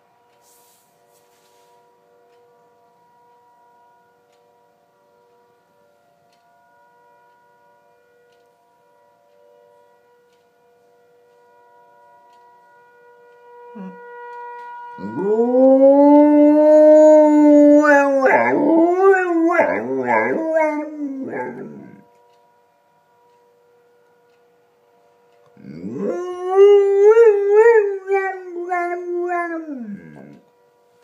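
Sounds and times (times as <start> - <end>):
faint emergency siren: 0.0 - 31.0
dog howling: 15.0 - 22.0, 25.6 - 30.4.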